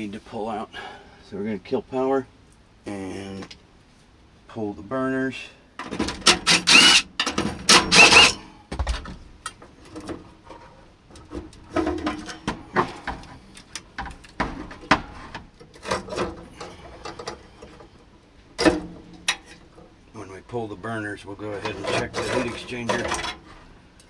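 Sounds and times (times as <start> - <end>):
cordless driver whirring: 6.4 - 7.1, 7.9 - 8.4.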